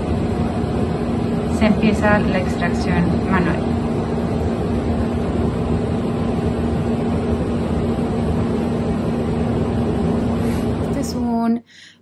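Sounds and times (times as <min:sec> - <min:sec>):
machine hum: 0:00.0 - 0:12.0.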